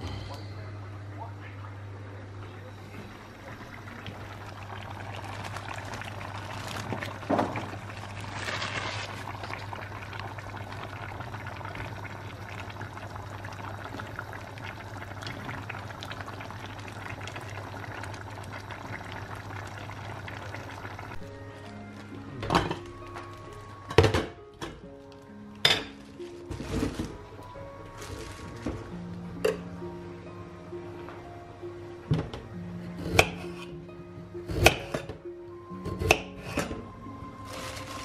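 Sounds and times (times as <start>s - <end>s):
stew bubbling and crackling: 2.7s - 22.2s.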